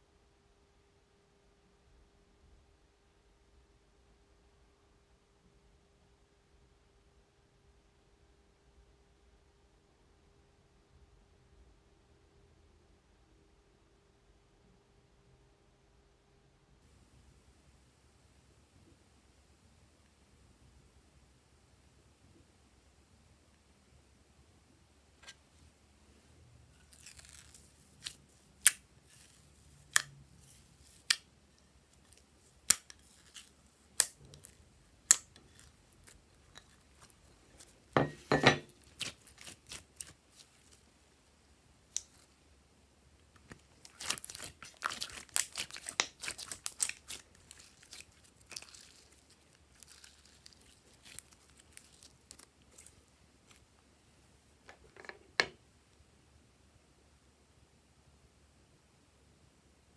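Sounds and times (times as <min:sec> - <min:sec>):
slime clicking and popping: 0:38.8 - 0:40.8, 0:43.8 - 0:53.0.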